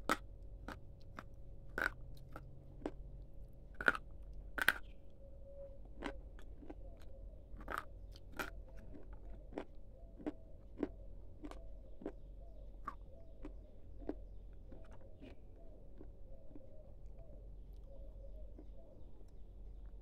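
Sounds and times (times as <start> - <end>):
person chewing crunchy snack: 0.0 - 5.0, 5.8 - 20.0
faint steady hum: 0.0 - 20.0.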